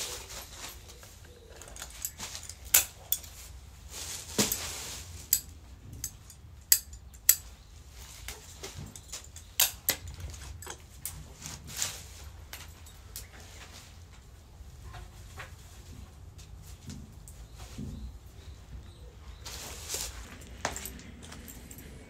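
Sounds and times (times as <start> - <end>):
leaf rustling: 0.0 - 5.5, 11.2 - 12.5, 19.4 - 21.6
stems clicking and snapping: 1.0 - 3.6, 5.2 - 7.6, 8.2 - 11.6.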